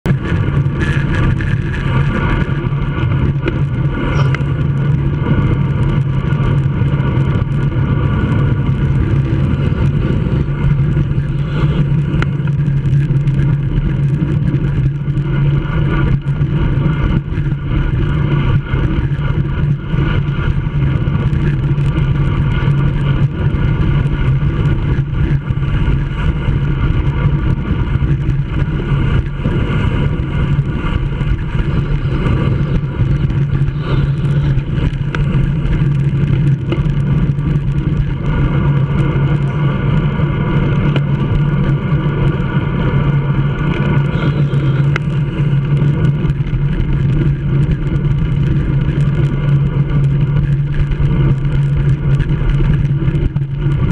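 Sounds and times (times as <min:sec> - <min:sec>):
constant low hum: 0:00.0 - 0:53.9
road noise: 0:00.0 - 0:53.9
wind rushing: 0:27.7 - 0:36.7.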